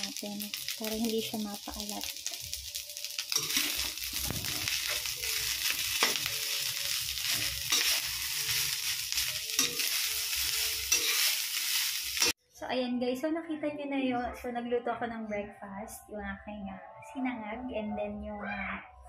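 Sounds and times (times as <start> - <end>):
rice sizzling in a wok: 0.0 - 12.4.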